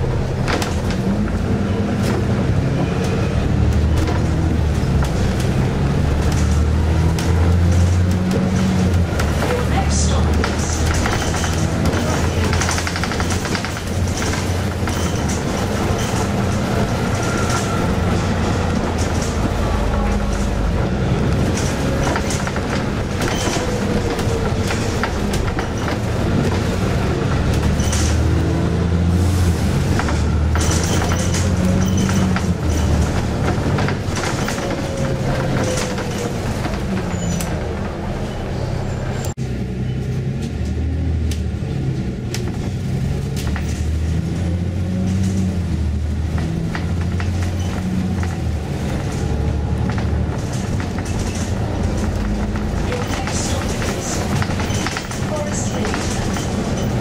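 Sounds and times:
bus fittings rattling: 0.0s - 29.0s, 29.6s - 38.6s, 42.3s - 57.0s
bus engine drone: 0.0s - 57.0s
road noise: 0.0s - 57.0s.

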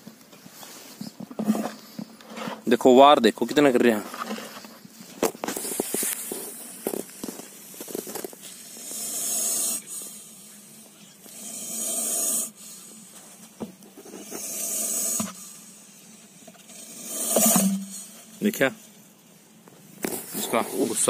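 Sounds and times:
snake hissing: 5.6s - 13.4s, 14.0s - 18.4s.

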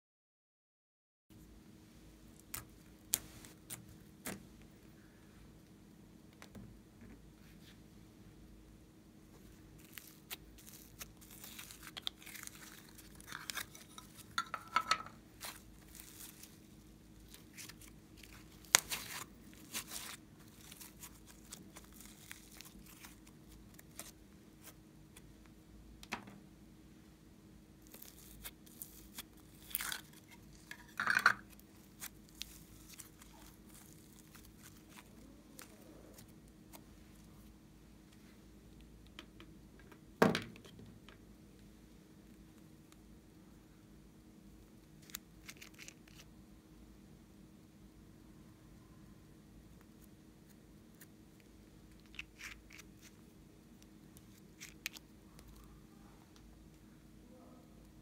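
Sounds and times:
slime crackling and tearing: 9.8s - 14.4s, 15.4s - 24.8s, 27.8s - 36.3s, 45.0s - 46.3s.

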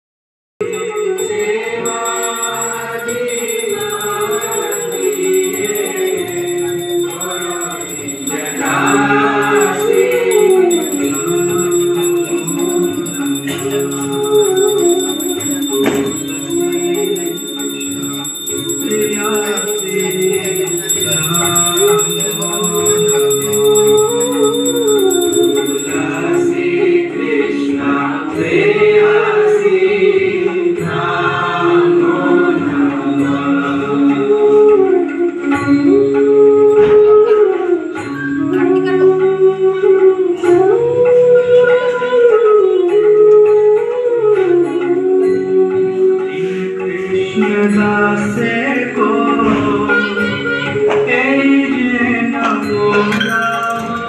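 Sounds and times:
song with singing voices: 0.6s - 54.0s.

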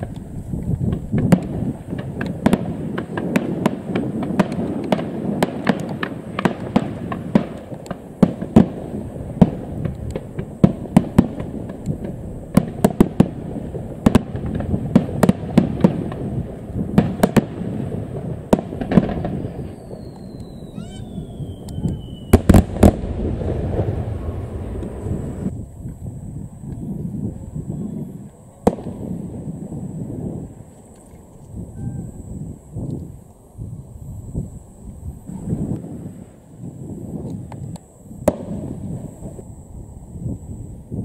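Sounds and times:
firework shells bursting: 0.0s - 25.5s.

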